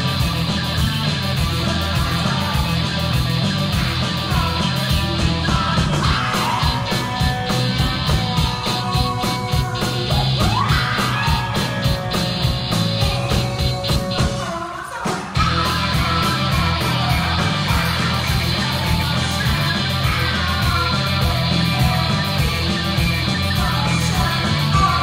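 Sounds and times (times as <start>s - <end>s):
rock band playing live: 0.0s - 25.0s
woman singing: 14.1s - 22.1s, 23.6s - 25.0s.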